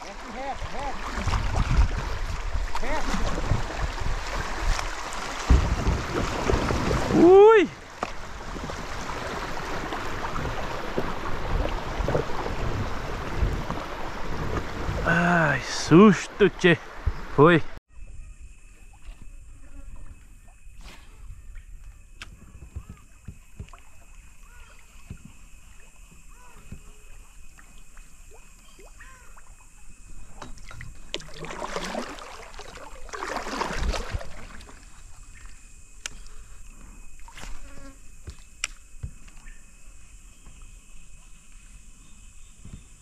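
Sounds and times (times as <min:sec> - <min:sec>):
rushing splashing water: 0:00.0 - 0:17.8, 0:30.4 - 0:35.4
water splashing: 0:00.0 - 0:17.8, 0:22.8 - 0:36.5
high insect drone: 0:17.9 - 0:43.0.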